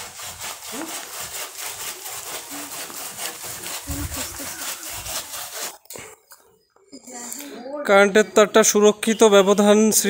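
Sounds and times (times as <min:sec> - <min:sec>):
hand saw cutting branch: 0:00.0 - 0:06.1.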